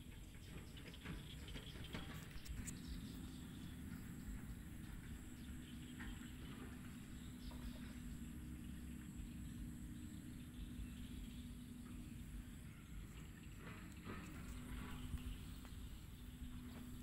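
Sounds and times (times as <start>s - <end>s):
low hum and hiss: 0.0s - 17.0s.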